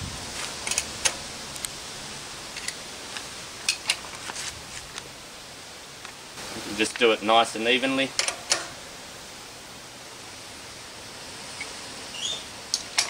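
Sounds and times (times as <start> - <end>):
spanner metallic clicks: 8.2 - 8.7.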